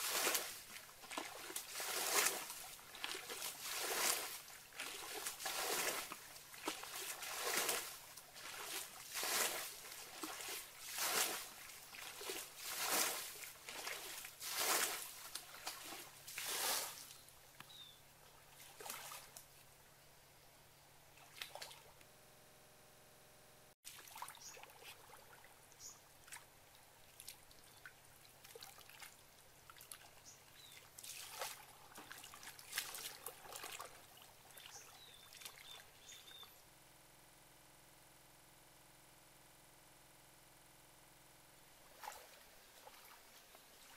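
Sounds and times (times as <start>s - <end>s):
muddy water splashing: 0.0s - 17.3s, 18.2s - 19.5s, 21.1s - 22.0s, 23.9s - 36.4s, 41.8s - 43.9s.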